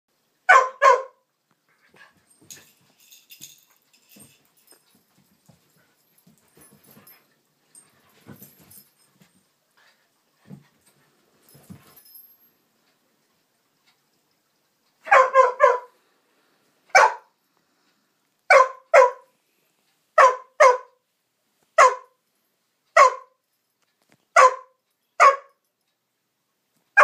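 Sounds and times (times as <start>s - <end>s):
dog barking: 0.5s - 1.2s, 15.0s - 16.0s, 16.9s - 17.3s, 18.5s - 19.3s, 20.2s - 21.0s, 21.8s - 22.2s, 23.0s - 23.4s, 24.4s - 25.6s
dogs scuffling: 1.9s - 9.5s.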